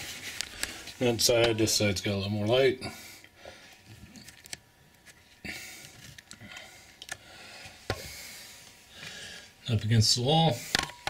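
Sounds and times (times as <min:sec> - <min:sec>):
soft rustling: 0:00.0 - 0:01.8.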